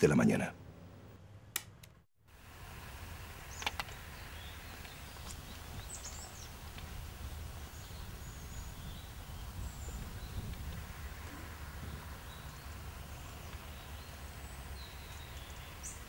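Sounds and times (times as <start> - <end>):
sharp click: 1.5 - 2.0.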